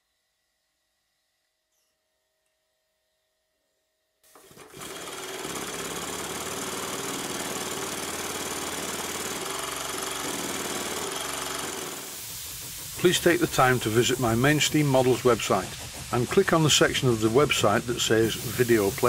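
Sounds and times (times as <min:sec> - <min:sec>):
steam hissing: 0:04.3 - 0:19.0
model steam engine running: 0:04.4 - 0:19.0.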